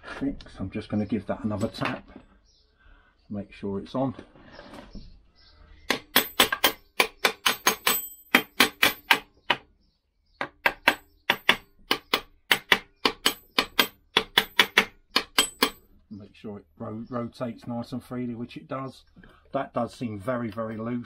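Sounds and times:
small hammer tapping on metal: 0:10.4 - 0:15.8.

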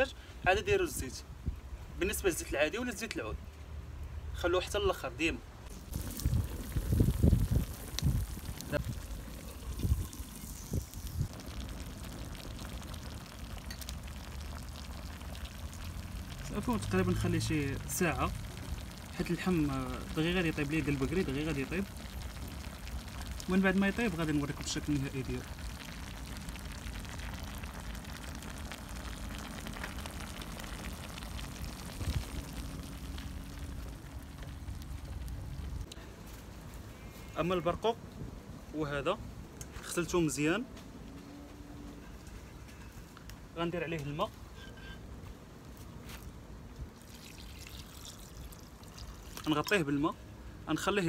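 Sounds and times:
low steady rumble: 0:05.5 - 0:36.9
stew bubbling and crackling: 0:05.7 - 0:36.0, 0:46.8 - 0:50.2.

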